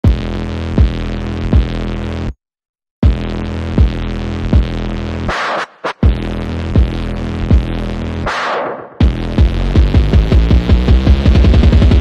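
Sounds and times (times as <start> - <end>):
electronic music: 0.1 - 2.3, 3.0 - 12.0
deep kick drum: 3.0 - 4.8, 6.8 - 7.8, 9.0 - 12.0.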